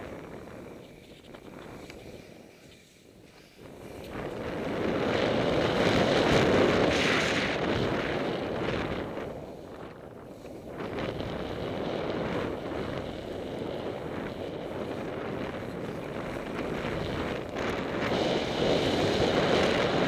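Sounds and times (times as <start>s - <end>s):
skis sliding through snow: 0.0s - 20.0s
wind rushing over microphone: 0.0s - 20.0s.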